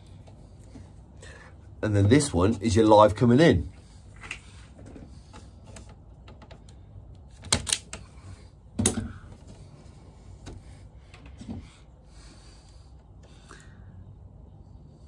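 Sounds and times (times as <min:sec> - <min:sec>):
wire stripper clicking: 0:07.4 - 0:08.0.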